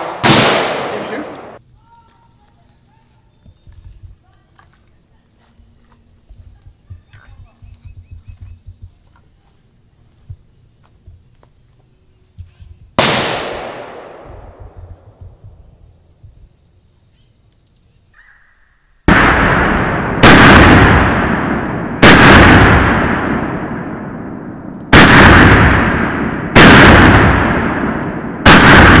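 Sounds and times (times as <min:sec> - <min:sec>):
pistol shots echoing: 0:00.0 - 0:01.6, 0:13.0 - 0:15.2, 0:19.1 - 0:29.0.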